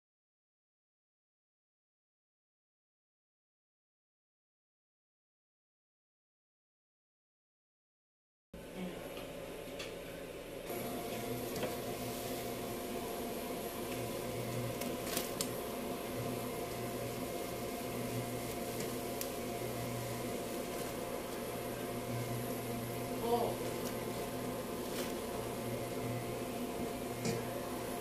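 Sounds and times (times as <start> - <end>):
appliance motor humming: 10.6 - 28.0.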